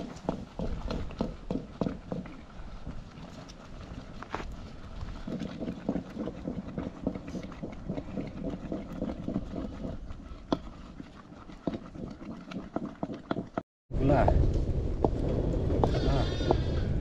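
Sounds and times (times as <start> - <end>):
low rumble: 13.9 - 17.0.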